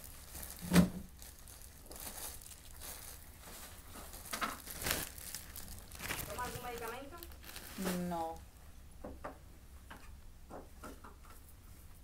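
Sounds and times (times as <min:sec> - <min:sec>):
fabric and paper rustling: 0:00.0 - 0:08.4
plastic packet tearing and crinkling: 0:00.0 - 0:08.4.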